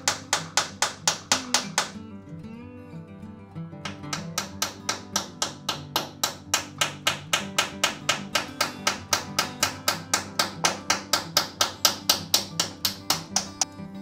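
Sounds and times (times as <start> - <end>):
plucked guitar: 0.0 - 11.4, 12.0 - 14.0
steady tapping beat: 3.9 - 13.7.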